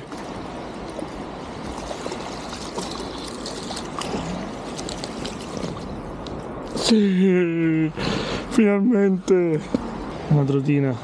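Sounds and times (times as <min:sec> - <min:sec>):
stream water running: 0:00.0 - 0:11.0
small splashes of fish: 0:01.6 - 0:06.2.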